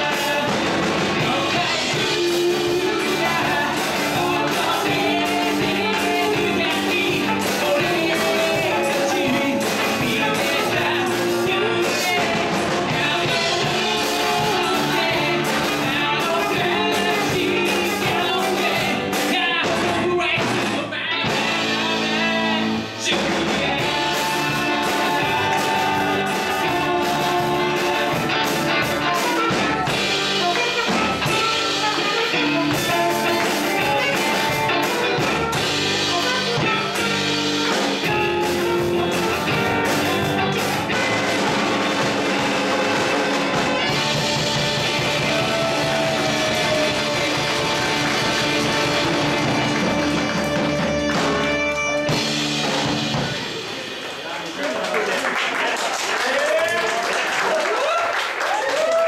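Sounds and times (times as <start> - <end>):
electric guitars: 0.0 - 54.6
drum kit: 0.0 - 54.9
rock band playing: 0.0 - 55.6
woman singing: 1.2 - 20.4.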